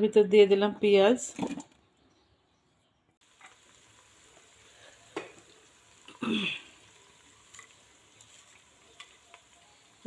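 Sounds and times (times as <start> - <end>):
onions being stirred in pot: 3.2 - 10.0
onions sizzling in oil: 3.2 - 10.0.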